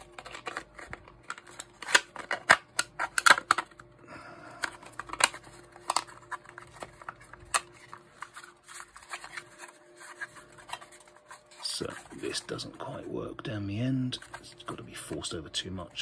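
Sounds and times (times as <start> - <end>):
plastic scrape: 4.6 - 13.0.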